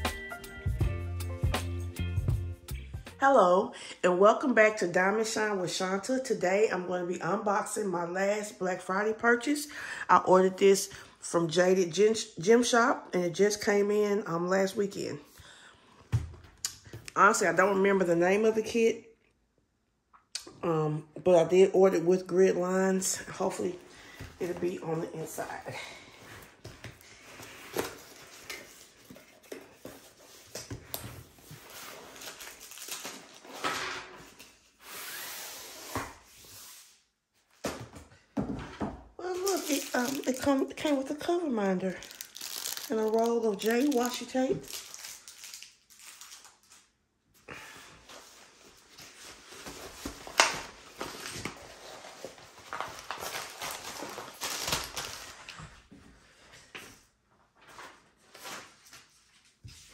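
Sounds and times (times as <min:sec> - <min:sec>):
paper wrapper rustling: 0:26.6 - 0:34.6, 0:39.2 - 0:46.9, 0:48.2 - 0:55.6
plastic bags crinkling: 0:27.7 - 0:33.7, 0:39.2 - 0:46.9, 0:49.4 - 0:55.6.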